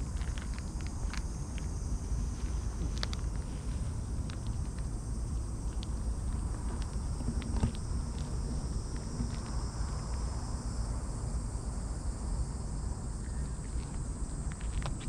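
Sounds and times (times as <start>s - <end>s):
high insect chirring: 0.0s - 15.0s
faint ticks: 2.8s - 10.4s.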